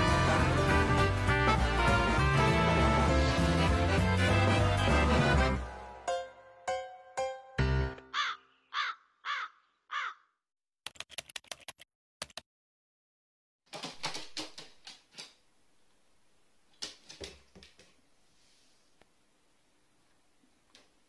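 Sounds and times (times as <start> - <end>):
music jingle: 4.5 - 8.1
crow cawing: 8.1 - 10.3
sharp typewriter-like clicks: 13.7 - 15.4.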